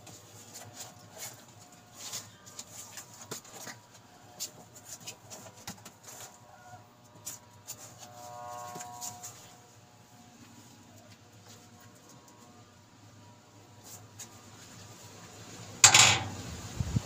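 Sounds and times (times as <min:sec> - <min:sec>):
puppies scrabbling on cardboard: 0:00.0 - 0:06.4.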